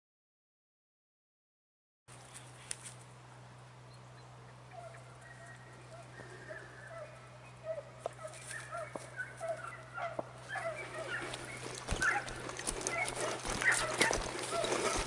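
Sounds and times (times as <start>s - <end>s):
dogs baying and yelping: 4.6s - 15.0s
crackling and rustling clicks: 11.1s - 15.0s.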